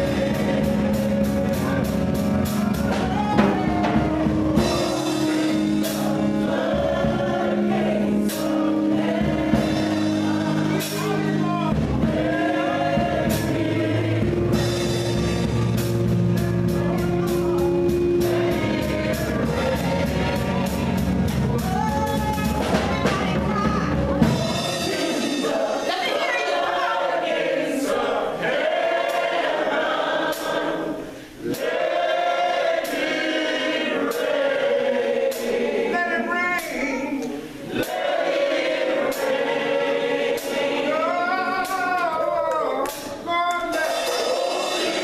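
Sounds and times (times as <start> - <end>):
live band with deep bass: 0.0 - 26.4, 40.2 - 45.0
gospel group singing: 0.0 - 45.0.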